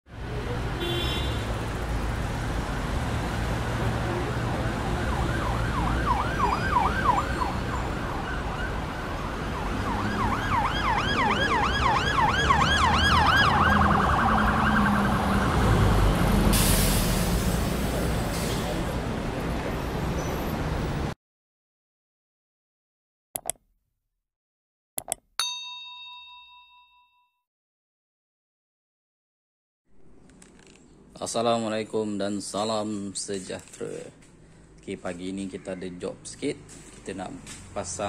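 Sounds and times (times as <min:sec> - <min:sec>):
electronic siren yelping: 0:04.8 - 0:08.8, 0:09.5 - 0:15.7.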